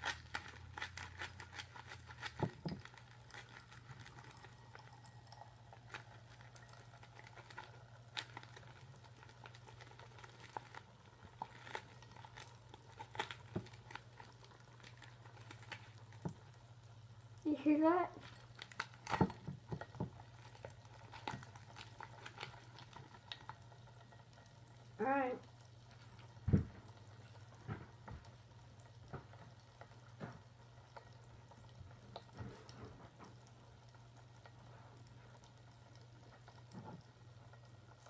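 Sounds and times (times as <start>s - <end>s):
soda fizzing and popping: 0.0s - 38.0s
thump: 26.5s - 26.8s.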